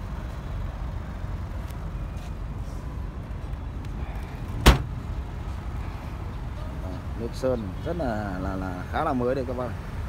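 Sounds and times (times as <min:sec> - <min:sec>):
car boot lid slamming shut: 0:04.6 - 0:04.9.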